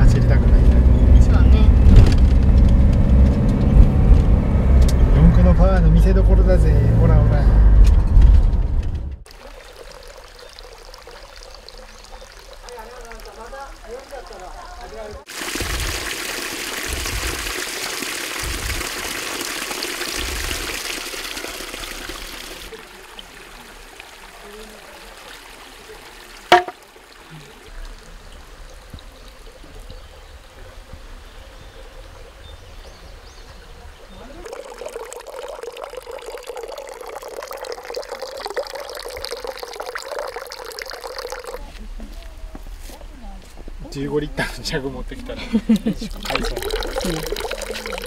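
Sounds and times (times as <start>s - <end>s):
water pouring into container: 9.3s - 29.6s, 34.2s - 41.8s, 45.9s - 48.0s
sharp knock: 26.5s - 26.8s.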